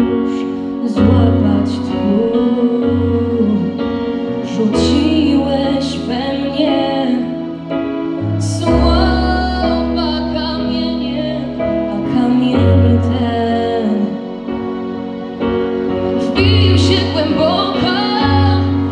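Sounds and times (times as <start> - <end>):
instrumental accompaniment: 0.0 - 18.9.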